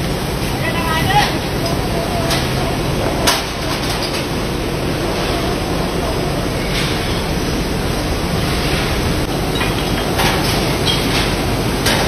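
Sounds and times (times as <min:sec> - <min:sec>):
bottles clinking on conveyors: 0:09.3 - 0:12.0.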